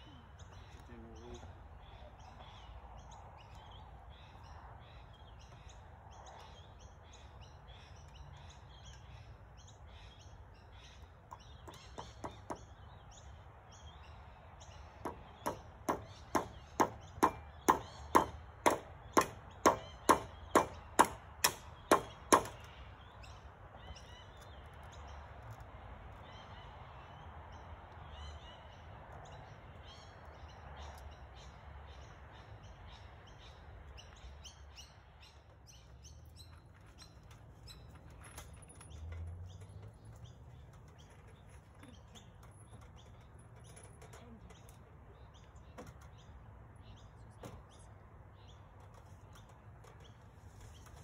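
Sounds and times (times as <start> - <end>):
hammer striking nail into wood: 15.0 - 22.7.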